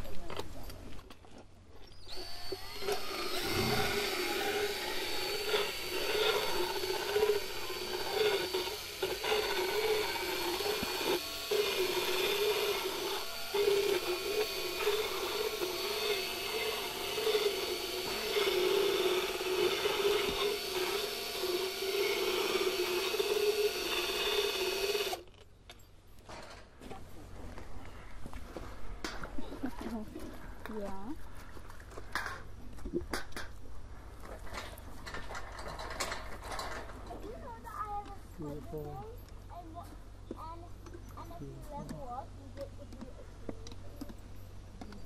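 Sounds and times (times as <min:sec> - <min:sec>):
motorized float whining: 0:02.0 - 0:25.2
rough rasping of teeth: 0:03.3 - 0:25.1.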